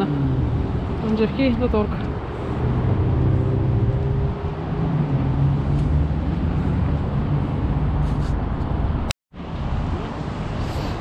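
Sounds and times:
cars driving past: 0:00.0 - 0:11.0.

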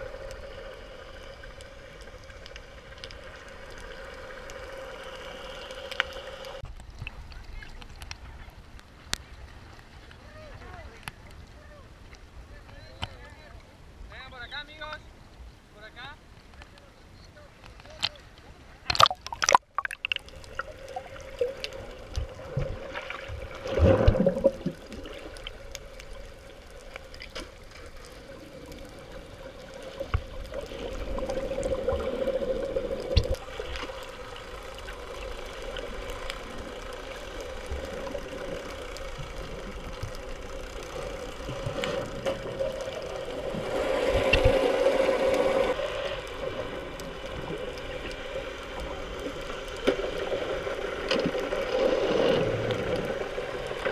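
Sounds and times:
underwater clicks: 0:18.8 - 0:45.5
swishing water surge: 0:18.9 - 0:25.7.

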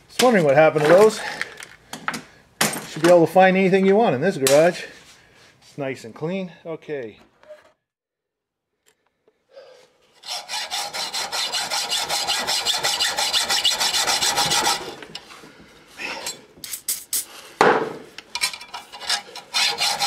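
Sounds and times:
hacksaw cutting through bolt: 0:10.2 - 0:15.2, 0:18.6 - 0:20.0.

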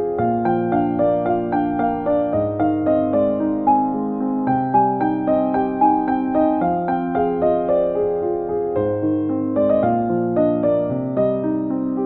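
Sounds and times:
soft keyboard melody: 0:00.0 - 0:12.0.

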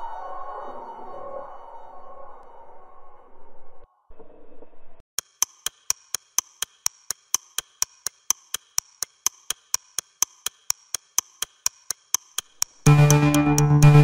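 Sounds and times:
clock-like ticking: 0:05.2 - 0:14.0.

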